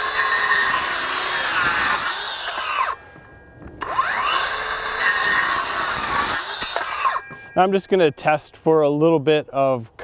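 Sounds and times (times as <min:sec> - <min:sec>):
circular saw cutting wood: 0:00.0 - 0:03.1, 0:03.8 - 0:07.3.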